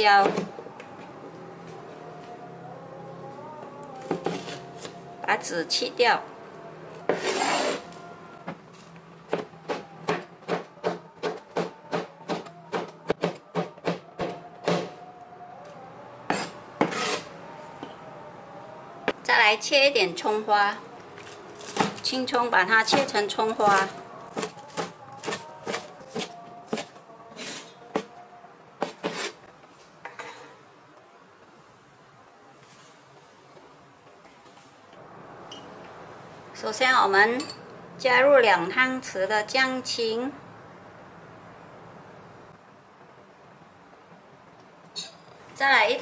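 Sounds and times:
blade scraping board: 7.1 - 8.0, 16.3 - 17.3, 28.8 - 29.4.

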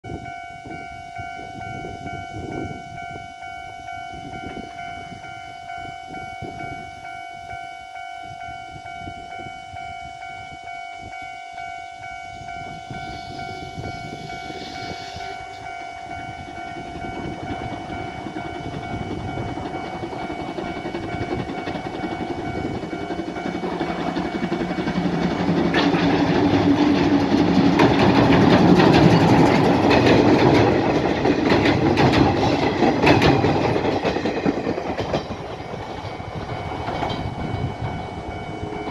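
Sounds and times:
steady high ringing tone: 0.1 - 38.9
steam locomotive approaching: 0.1 - 38.9
wheels rumbling on steel bridge: 12.4 - 38.9.

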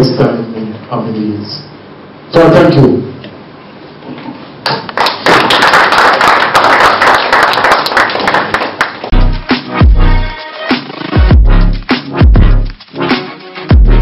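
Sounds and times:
people clapping: 4.6 - 9.2
electronic music sting: 9.2 - 14.0.

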